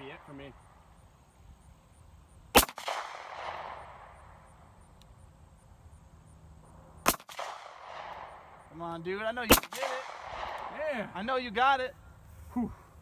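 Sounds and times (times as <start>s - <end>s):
pistol shots echoing: 2.6s - 4.1s, 7.0s - 8.5s, 9.5s - 10.8s.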